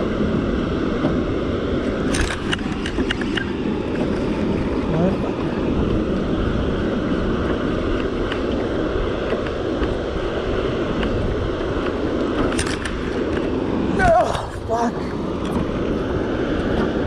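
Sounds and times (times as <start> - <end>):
water rushing through dam spillway: 0.0 - 17.0
wind on microphone: 0.0 - 17.0.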